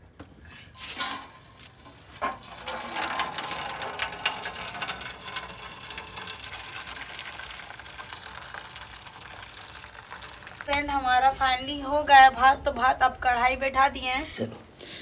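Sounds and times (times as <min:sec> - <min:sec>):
water pouring into steel bowl: 0:00.7 - 0:11.3.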